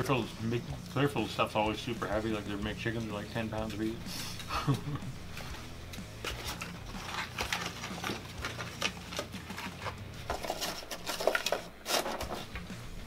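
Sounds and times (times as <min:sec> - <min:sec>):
cardboard boxes being handled: 0:06.2 - 0:12.6.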